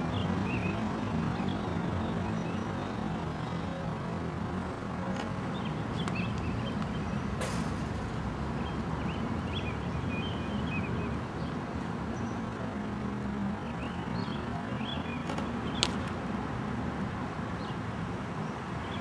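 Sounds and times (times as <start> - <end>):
birds chirping: 0.0 - 3.9, 5.3 - 7.4, 8.5 - 16.1, 17.5 - 19.0.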